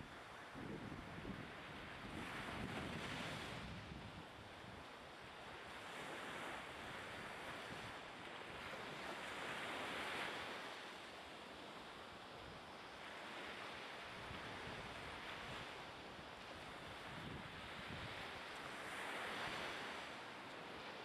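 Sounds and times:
rushing sea water: 0.0 - 21.0
wind buffeting microphone: 0.6 - 4.3, 16.6 - 20.0.

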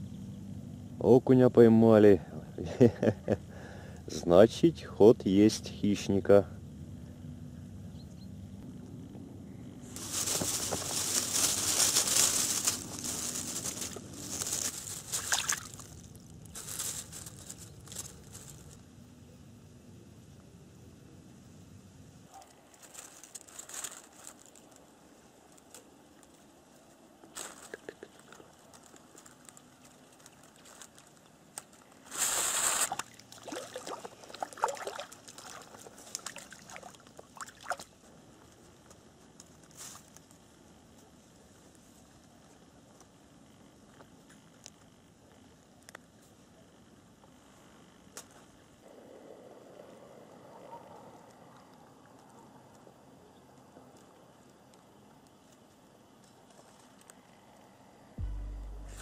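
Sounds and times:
dry reeds rustling and crackling: 9.8 - 18.9, 22.3 - 43.2, 53.8 - 57.6
water sloshing and trickling: 14.5 - 15.9, 32.9 - 37.9
fish splashing at surface: 15.2 - 15.8, 32.4 - 37.8.

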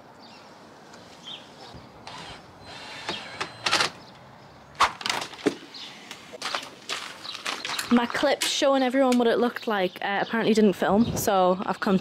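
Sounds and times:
cordless drill running: 2.0 - 4.0.

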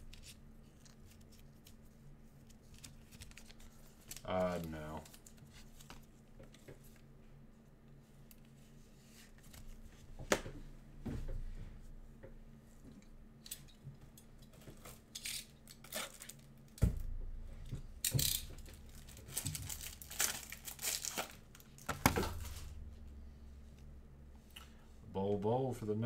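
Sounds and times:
plastic wrapper crinkling and tearing: 2.4 - 6.1, 14.8 - 16.8, 18.0 - 22.7.

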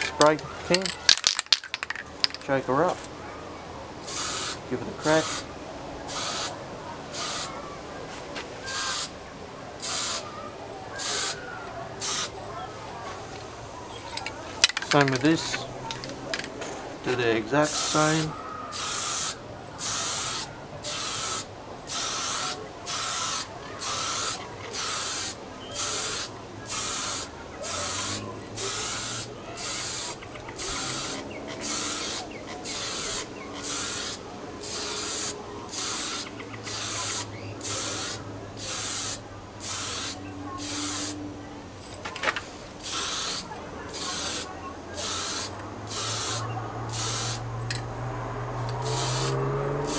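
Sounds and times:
spray can hissing: 4.1 - 5.4, 6.1 - 7.5, 8.6 - 9.1, 9.8 - 10.2, 11.0 - 11.4, 12.0 - 12.4, 17.6 - 41.2, 42.8 - 47.4, 48.8 - 49.9.

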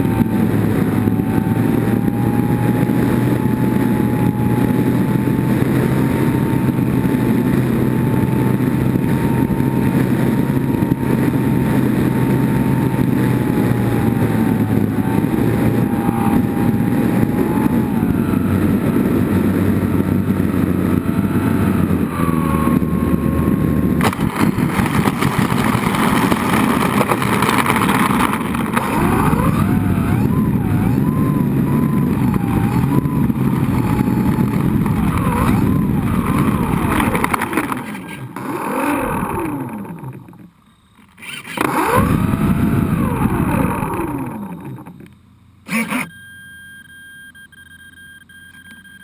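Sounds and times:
model airplane motor and propeller: 0.0 - 46.2
faint steady high tone: 40.5 - 41.0, 45.0 - 49.0.

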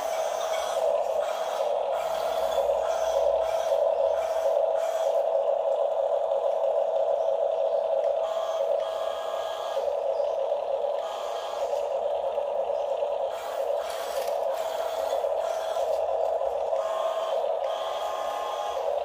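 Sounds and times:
whine of small electric motors: 0.0 - 19.0.

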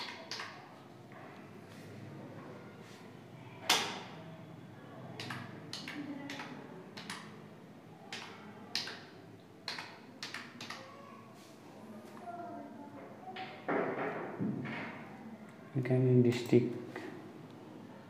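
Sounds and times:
touchscreen typing taps: 5.2 - 7.4.

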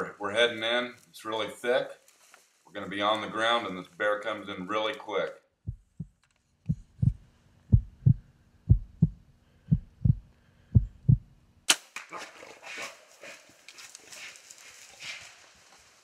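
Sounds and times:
rustling in undergrowth: 0.0 - 4.5, 12.3 - 16.0
heartbeat thumps: 5.6 - 11.4.

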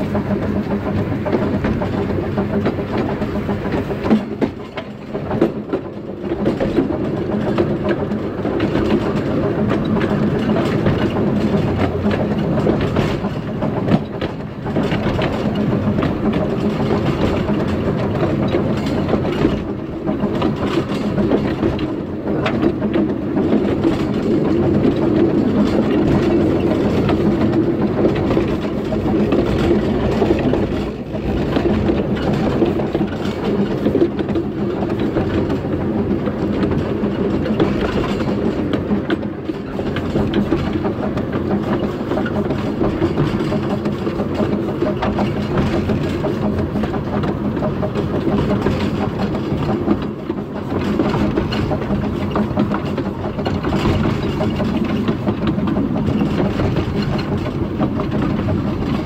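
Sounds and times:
wheels on rail: 0.0 - 59.0.

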